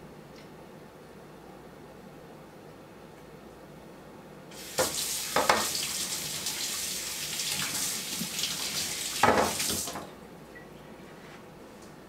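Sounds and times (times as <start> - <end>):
tap water running: 4.5 - 10.1.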